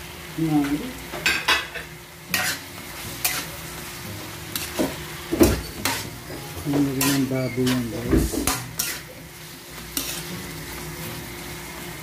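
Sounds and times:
frying sizzle: 0.0s - 12.0s
metal spatula scraping wok: 1.7s - 10.9s.

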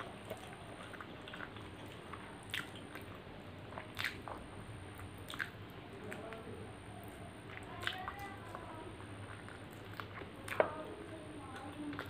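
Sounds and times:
wet squishing of food: 0.0s - 12.0s
mouth clicks and lip smacks: 2.5s - 4.4s, 5.0s - 6.3s.

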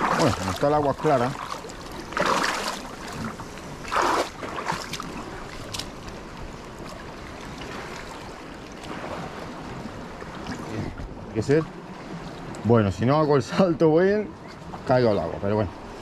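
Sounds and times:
splashy swells: 0.0s - 5.8s
seawater lapping among rocks: 0.0s - 13.3s, 14.1s - 16.0s.

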